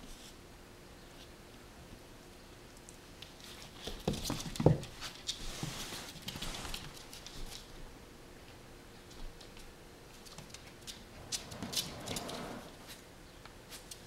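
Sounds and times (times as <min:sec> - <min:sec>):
puppy claws scrabbling on floor: 0:03.2 - 0:07.8, 0:09.0 - 0:13.0.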